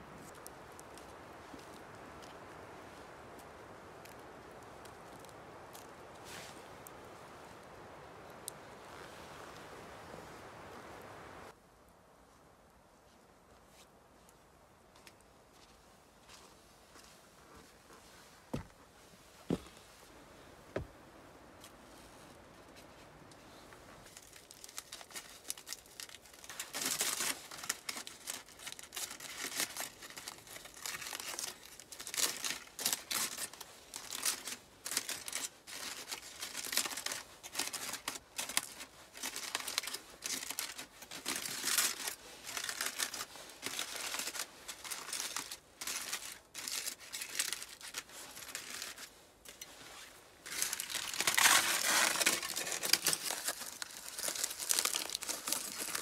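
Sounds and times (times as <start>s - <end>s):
aluminium foil crinkling: 24.0s - 56.0s.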